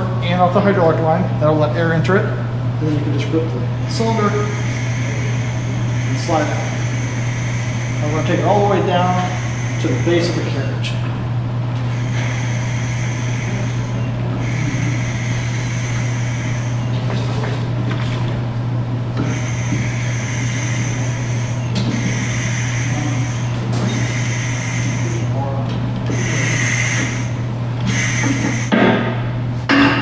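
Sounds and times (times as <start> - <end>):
steady low hum: 0.0 - 30.0
air hissing with whistle: 3.7 - 11.0, 11.8 - 17.4, 19.2 - 25.4, 26.1 - 28.8.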